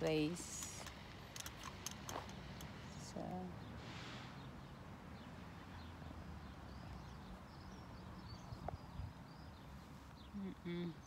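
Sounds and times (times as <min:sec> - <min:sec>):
wind rumble on microphone: 0:08.2 - 0:09.6.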